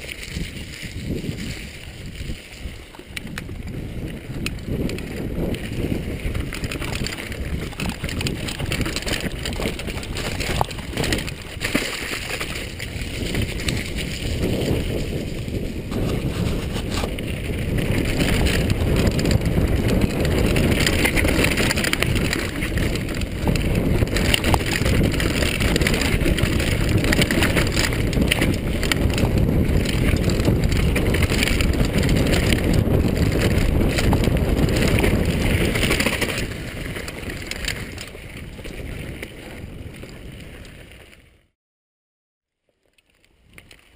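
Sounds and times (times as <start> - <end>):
wind buffeting microphone: 0.0 - 41.2
bike tyres rolling on dirt: 0.0 - 41.5, 42.5 - 43.9
bike knocks and rattles: 2.9 - 40.4.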